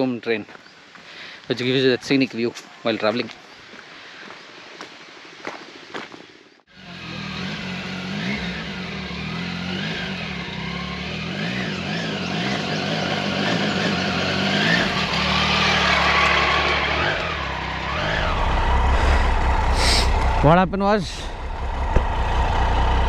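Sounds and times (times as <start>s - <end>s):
motorcycle engine revving: 6.7s - 23.0s.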